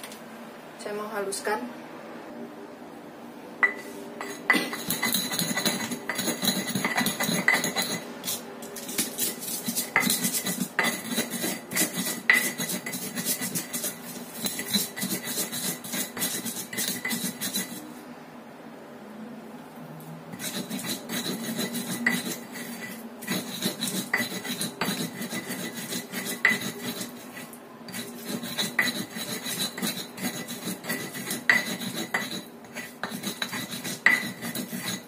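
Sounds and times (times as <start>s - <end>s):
pestle pounding in stone mortar: 3.6s - 17.8s, 20.4s - 35.0s.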